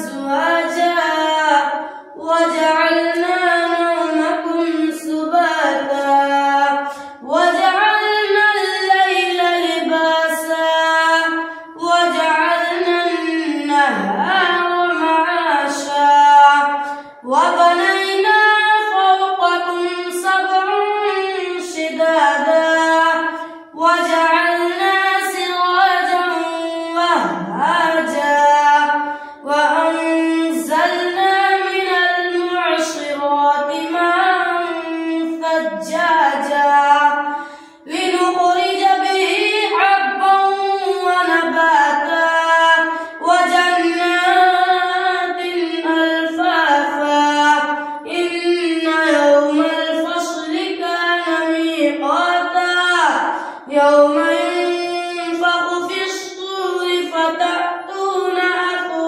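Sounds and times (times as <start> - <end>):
boy chanting recitation: 0.0 - 59.0
short breaths: 6.8 - 7.2, 16.8 - 17.2, 29.0 - 29.4, 37.3 - 37.9, 53.3 - 53.7.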